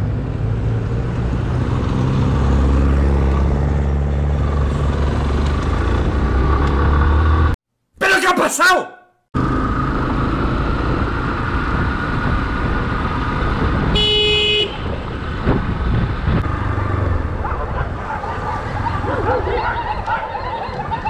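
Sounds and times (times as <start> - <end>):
motorcycle engine rumble: 9.4 - 21.0
wind noise: 10.8 - 21.0
vehicle horn honk: 13.9 - 14.9.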